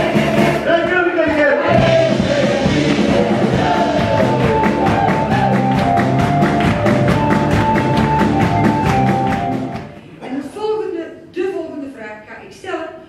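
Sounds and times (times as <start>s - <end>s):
instrumental music with drums: 0.0s - 10.0s.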